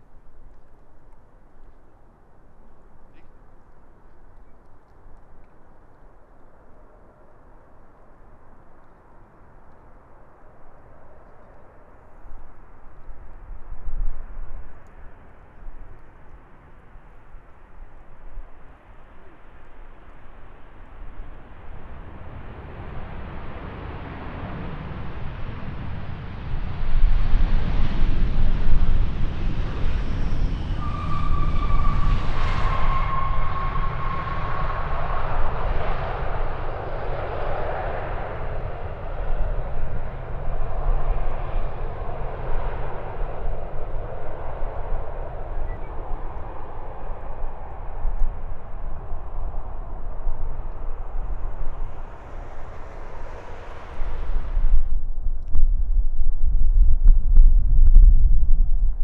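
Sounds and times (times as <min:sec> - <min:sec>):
jet airliner passing: 0:09.4 - 0:55.4.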